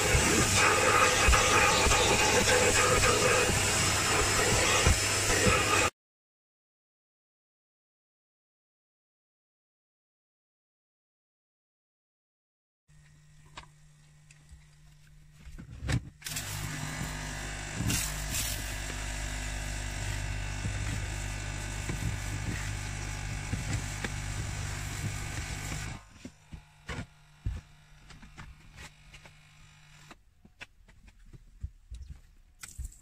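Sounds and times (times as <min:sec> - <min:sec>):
vacuum cleaner motor whining: 0:00.0 - 0:05.9, 0:12.9 - 0:30.2.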